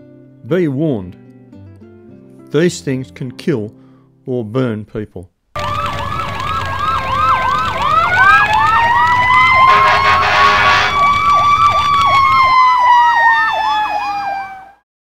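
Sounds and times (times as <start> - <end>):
siren wail: 5.6 - 14.8
siren yelp: 5.6 - 14.8
vehicle horn blast: 9.6 - 11.0.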